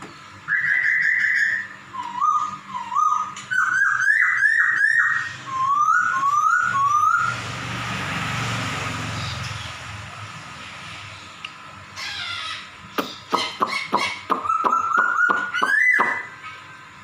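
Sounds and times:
bird calling whistled notes: 0.4 - 7.4, 12.1 - 16.6.

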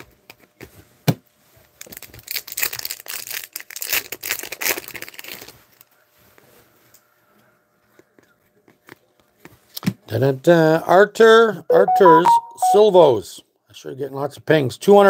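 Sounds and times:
foil wrapper tearing and crinkling: 1.8 - 5.9.

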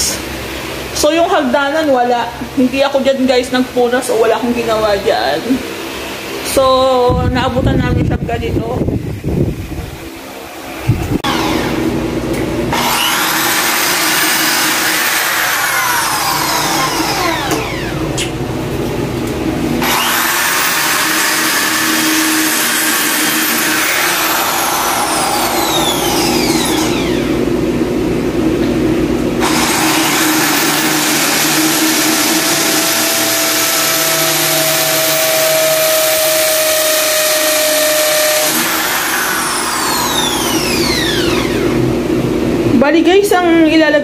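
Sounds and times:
electric drill whining: 11.1 - 12.0, 12.7 - 18.4, 19.8 - 27.5, 29.4 - 41.9.

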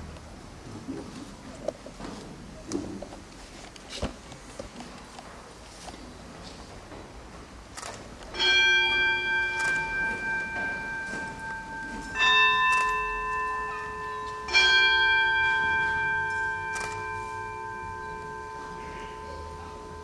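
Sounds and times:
altar bells ringing: 8.3 - 20.0.

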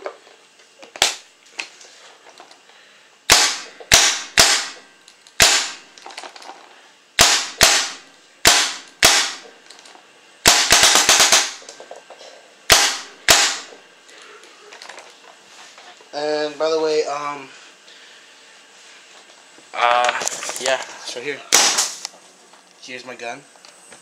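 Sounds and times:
paintball gun shots: 3.3 - 4.8, 5.4 - 5.8, 7.2 - 9.4, 10.4 - 11.6, 12.7 - 13.7, 21.5 - 22.0.

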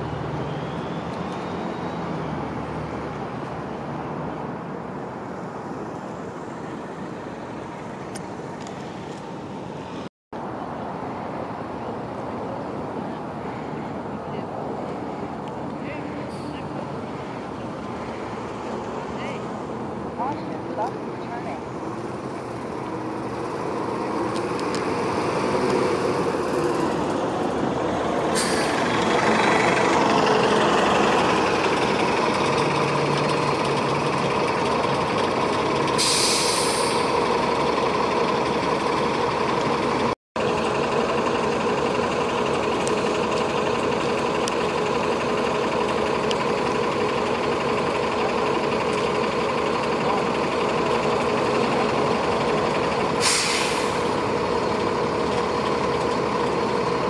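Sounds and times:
bus engines humming: 0.0 - 57.0
air brake hisses: 28.3 - 28.8, 36.0 - 37.2, 53.2 - 54.1.

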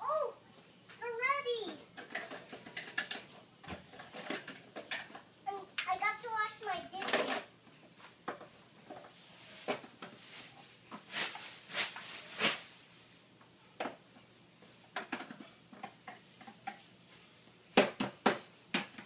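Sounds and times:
plastic toy clicks and knocks: 2.0 - 3.3, 7.0 - 7.4.

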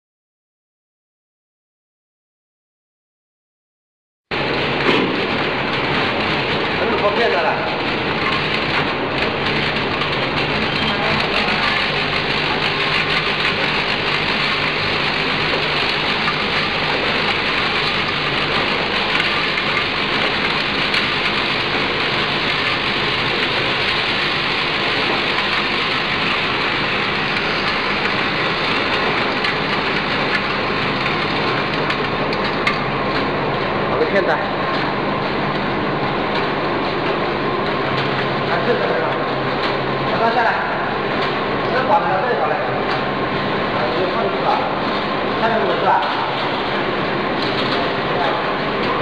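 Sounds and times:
machine hum: 4.3 - 49.0.

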